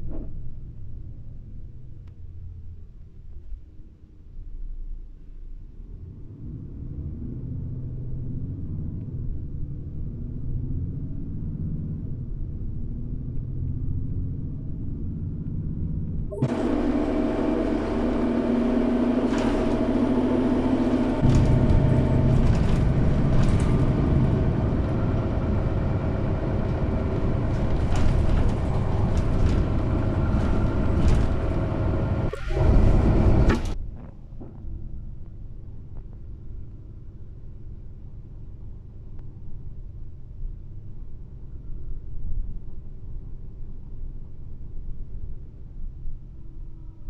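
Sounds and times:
bus engine and tyre rumble: 0.0 - 47.0
truck passing: 14.1 - 33.8.

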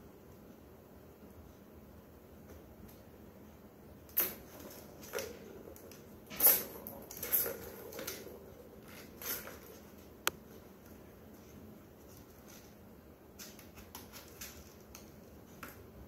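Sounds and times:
plastic toy balls rattling: 4.1 - 10.1.

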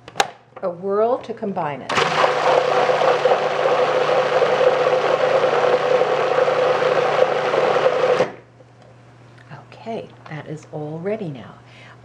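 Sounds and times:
food processor motor hum: 1.9 - 8.4.

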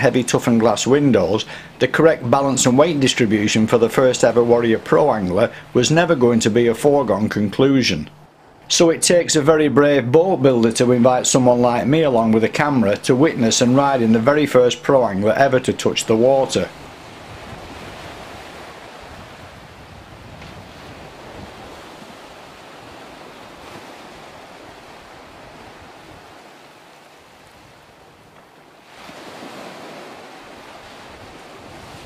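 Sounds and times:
small surf breaking: 16.7 - 32.0
wind on microphone: 16.7 - 32.0.

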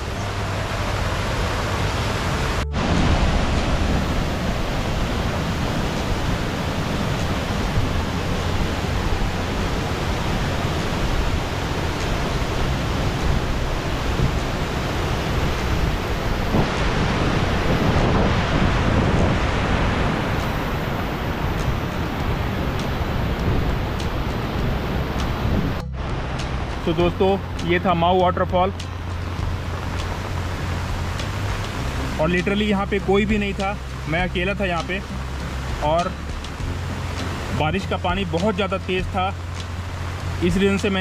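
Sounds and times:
heavy rain: 0.0 - 41.0
rushing stream and waterfall: 0.0 - 41.0.

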